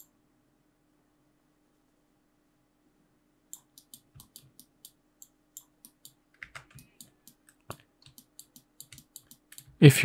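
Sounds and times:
keyboard and mouse clicking: 3.5 - 9.8.

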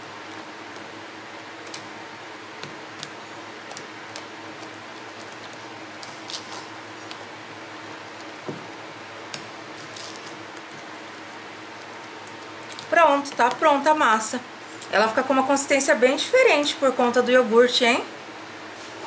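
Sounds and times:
spatula stirring thick batter: 0.0 - 13.8.

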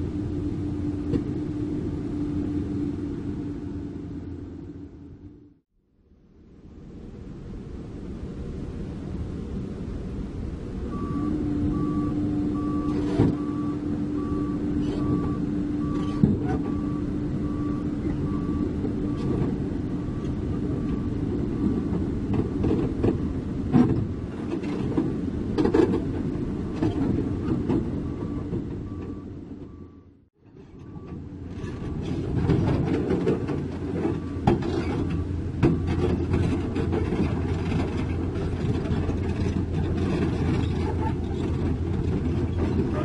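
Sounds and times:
excavator diesel engine running: 0.0 - 5.6, 10.9 - 43.0
travel alarm beeping: 10.9 - 19.3
steel tracks clanking on deck: 30.6 - 43.0.

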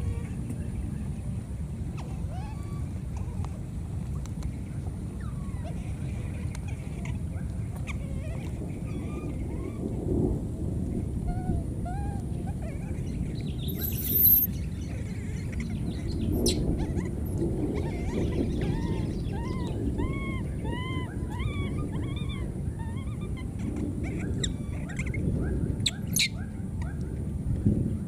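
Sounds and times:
low background noise: 0.0 - 28.0
baby monkeys crying: 2.0 - 3.4, 11.3 - 14.5, 16.4 - 25.2.

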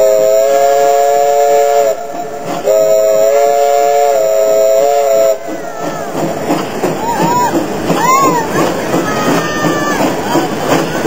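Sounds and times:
steam locomotive chime whistle: 0.0 - 5.5
train running noise: 0.0 - 11.0.

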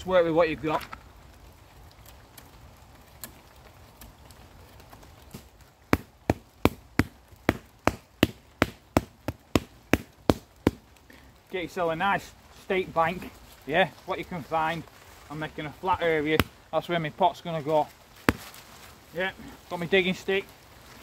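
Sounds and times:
hand patting damp earth: 11.6 - 21.0.

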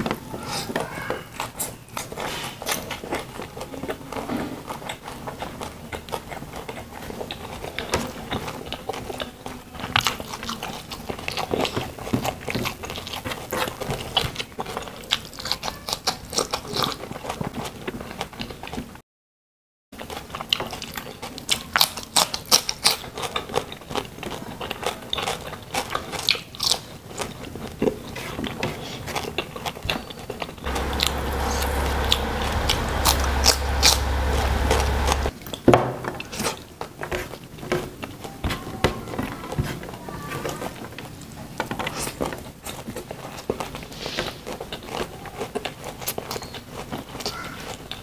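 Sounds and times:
chewing and wet mouth sounds: 0.8 - 19.0, 20.0 - 35.6, 39.8 - 48.0
steady low hum: 30.7 - 35.3.

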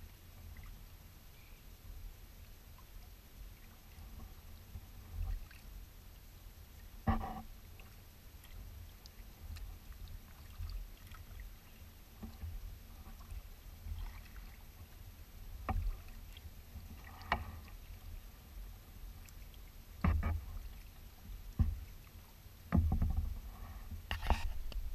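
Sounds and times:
paddle knocks and splashes: 20.0 - 22.1, 22.7 - 24.9.

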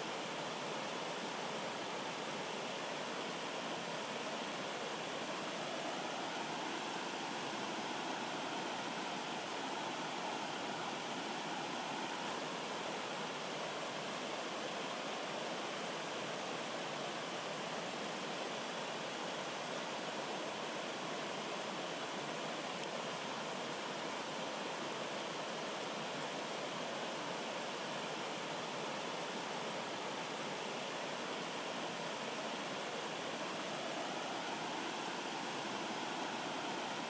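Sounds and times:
stream rushing over rocks: 0.0 - 37.0.

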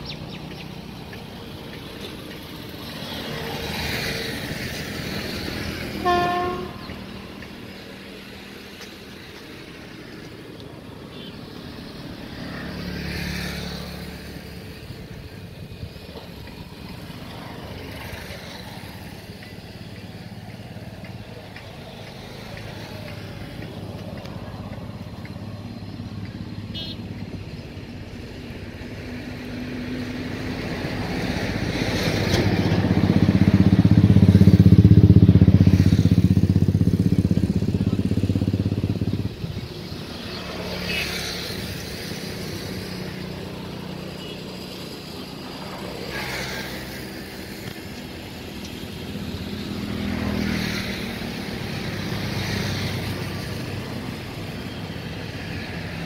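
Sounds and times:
vehicle engine running: 31.6 - 56.0.

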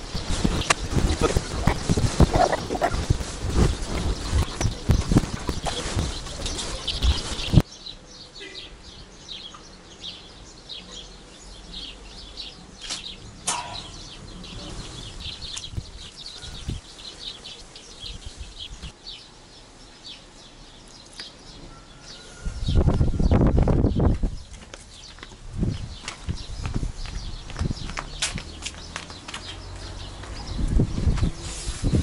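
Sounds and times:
loud noisy rustle: 0.0 - 7.6, 30.0 - 32.0
birds chirping: 0.0 - 32.0.

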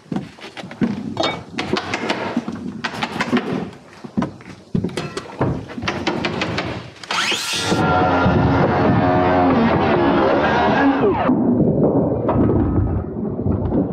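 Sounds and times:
footsteps on wooden subfloor: 0.0 - 6.1
lumber and tools knocking: 0.8 - 6.9.

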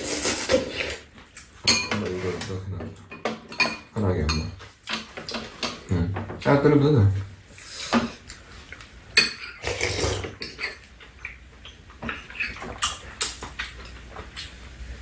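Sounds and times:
utensils clinking against bowls: 1.6 - 6.6, 9.2 - 10.9.

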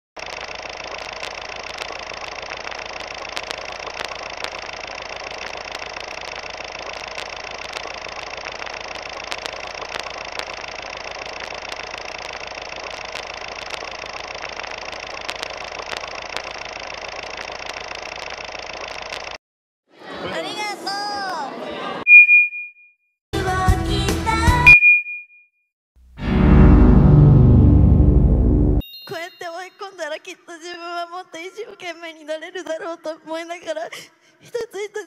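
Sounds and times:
film projector whirring: 0.2 - 19.4.

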